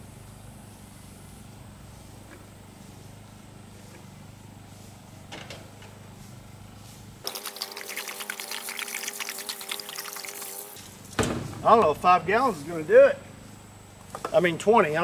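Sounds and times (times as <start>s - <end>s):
steady low hum: 0.0s - 7.3s, 10.6s - 15.0s.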